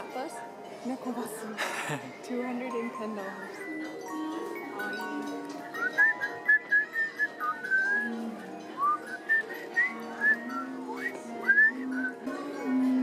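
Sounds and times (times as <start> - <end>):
whistled melody: 5.7 - 13.0.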